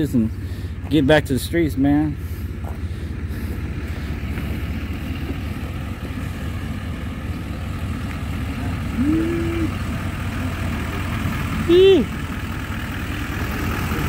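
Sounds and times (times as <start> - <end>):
pickup engine idling: 0.0 - 14.0
person humming: 9.0 - 9.8.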